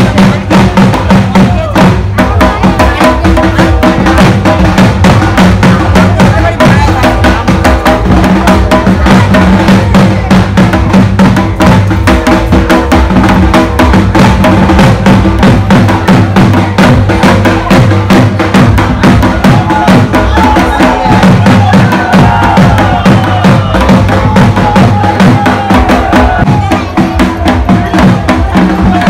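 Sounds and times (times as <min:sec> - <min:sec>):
loud dance music: 0:05.6 - 0:10.3, 0:18.9 - 0:29.0.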